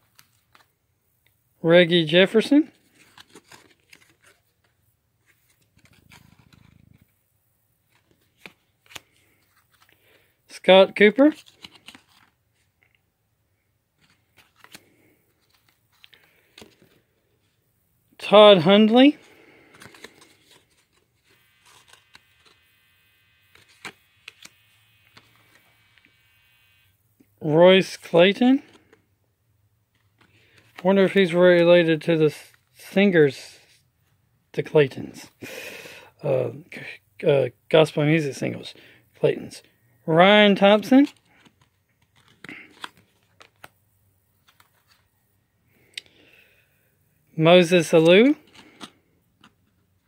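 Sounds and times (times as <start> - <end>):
card handling clicks and rustles: 0.0 - 0.8, 2.2 - 7.1, 7.8 - 13.0, 14.0 - 17.6, 18.3 - 26.2, 27.2 - 29.1, 29.8 - 32.8, 40.4 - 45.2, 47.6 - 50.0
faint steady hum: 0.0 - 50.0
faint low buzz: 21.2 - 27.3.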